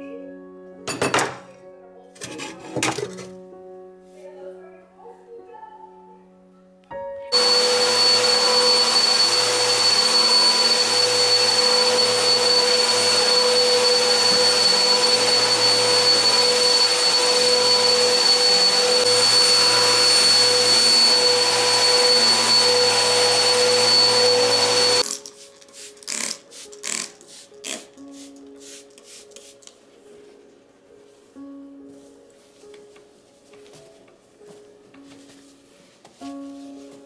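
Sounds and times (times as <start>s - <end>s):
vacuum cleaner running: 7.3s - 25.1s.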